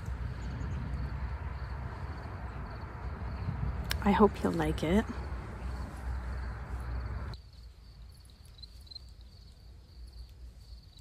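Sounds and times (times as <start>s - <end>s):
low rumble: 0.0s - 7.4s
high-pitched insect trill: 6.3s - 11.0s.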